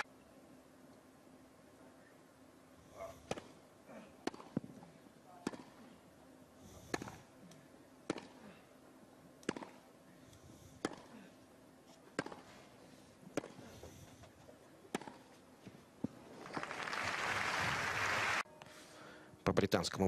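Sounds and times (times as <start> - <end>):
tennis ball hit by rackets: 4.2 - 4.7, 5.4 - 5.8, 8.1 - 8.4, 9.4 - 9.8, 10.8 - 11.1, 12.1 - 12.5, 13.3 - 13.6, 14.9 - 15.3
crowd applause: 16.4 - 18.4.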